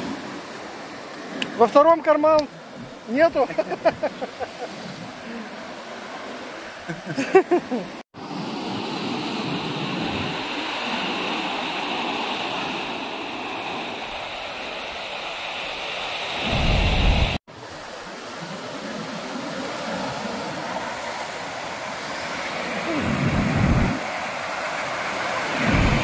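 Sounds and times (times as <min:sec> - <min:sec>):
surf washing onto beach: 0:00.0 - 0:26.0
wind buffeting microphone: 0:08.2 - 0:14.8, 0:16.4 - 0:17.4, 0:18.8 - 0:26.0.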